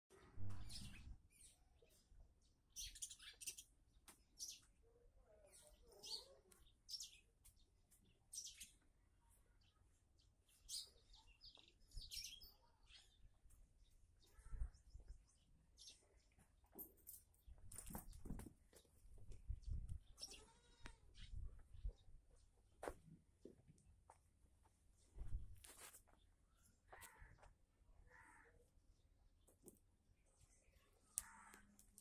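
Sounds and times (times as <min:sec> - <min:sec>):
small birds chirping: 0:00.1 - 0:23.9, 0:25.0 - 0:32.0.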